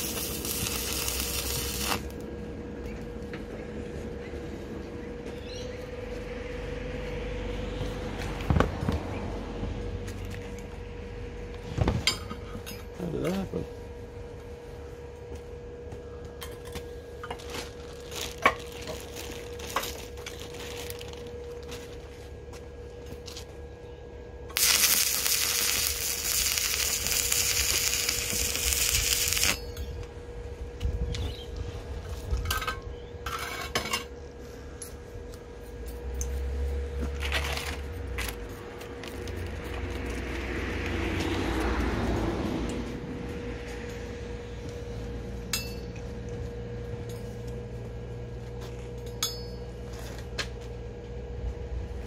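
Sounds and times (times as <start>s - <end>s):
loud hissing rush: 0.0s - 2.1s
faint hum: 0.0s - 52.0s.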